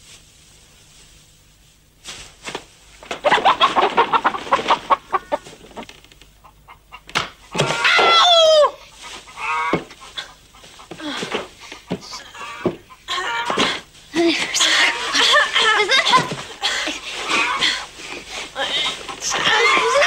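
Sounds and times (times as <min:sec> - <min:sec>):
chickens clucking: 0:03.0 - 0:07.8, 0:08.8 - 0:13.9, 0:14.6 - 0:20.0.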